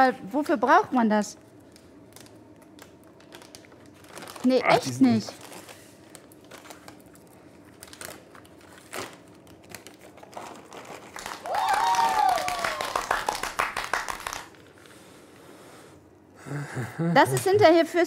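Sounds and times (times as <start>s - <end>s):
crinkling with small clicks: 1.6s - 4.5s, 5.3s - 11.4s.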